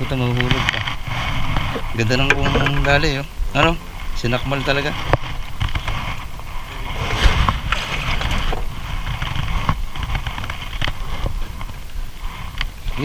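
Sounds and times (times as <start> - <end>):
water noise: 0.0 - 13.0
wind: 0.0 - 13.0
knocks and clicks on boat: 0.4 - 3.1.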